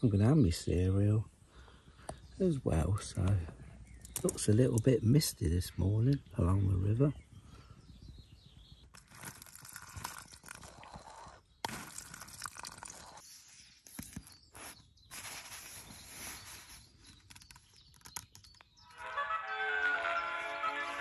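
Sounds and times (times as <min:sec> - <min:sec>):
rustling of nylon gear: 0:09.0 - 0:18.6
music from small radio: 0:18.8 - 0:21.0.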